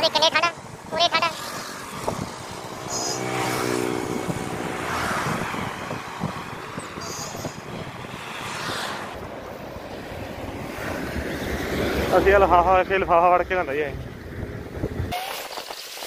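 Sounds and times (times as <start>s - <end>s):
road noise: 0.0s - 16.0s
vehicle engine droning: 0.2s - 8.2s, 9.2s - 15.1s
wind buffeting microphone: 0.6s - 15.2s
short high squeaks: 2.9s - 3.3s, 7.0s - 7.6s, 15.1s - 16.0s.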